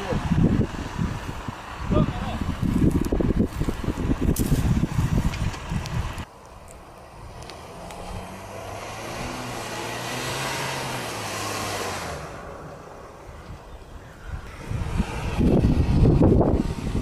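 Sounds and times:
diesel engine under load: 0:00.0 - 0:17.0.

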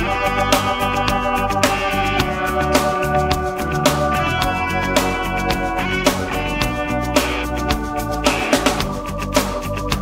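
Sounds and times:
rock music with electric guitars: 0:00.0 - 0:10.0.

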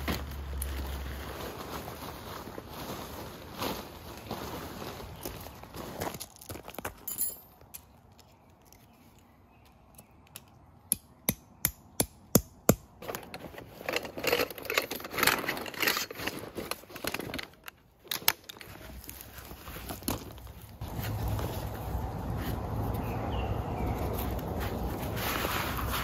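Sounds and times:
rustling: 0:00.0 - 0:06.6, 0:13.0 - 0:26.0.

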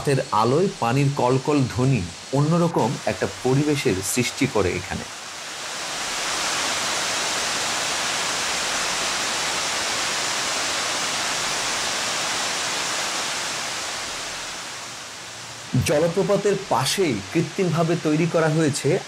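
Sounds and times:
waterfall cascading over rocks: 0:00.0 - 0:19.0.

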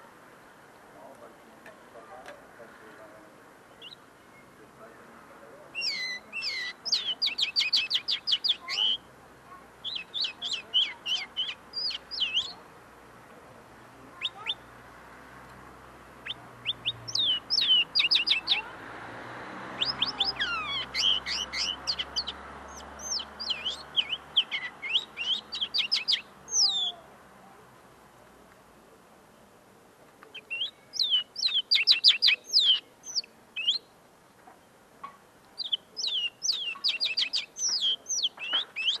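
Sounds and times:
bird twittering song: 0:03.6 - 0:04.7, 0:05.7 - 0:09.1, 0:09.8 - 0:12.7, 0:14.1 - 0:14.8, 0:16.2 - 0:18.7, 0:19.5 - 0:27.0, 0:30.2 - 0:39.0.

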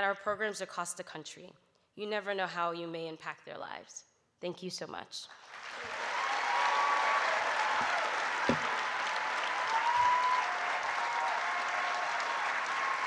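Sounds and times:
audience applauding: 0:05.4 - 0:13.0
dull thump: 0:08.5 - 0:08.7.

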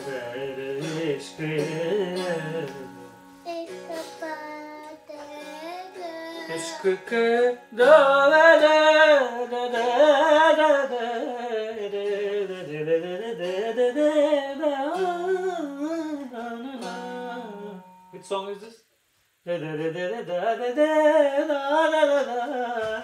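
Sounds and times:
man singing: 0:00.0 - 0:03.2, 0:06.3 - 0:18.2, 0:19.4 - 0:23.0
strummed ukulele: 0:00.0 - 0:18.3.

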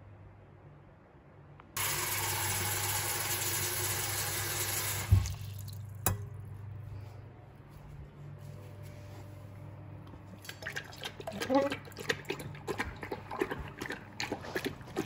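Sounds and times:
tap water running into metal bowl: 0:01.8 - 0:06.2.

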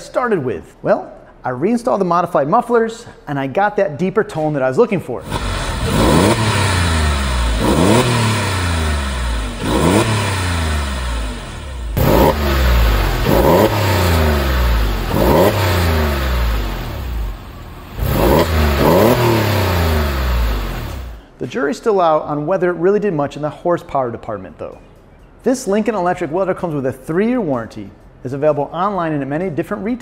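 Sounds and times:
car engine revving: 0:05.2 - 0:21.2.

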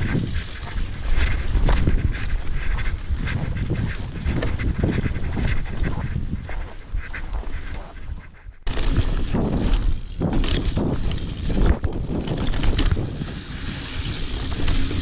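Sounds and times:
wind buffeting microphone: 0:00.0 - 0:15.0
mountain bike clattering over rock: 0:08.7 - 0:15.0.

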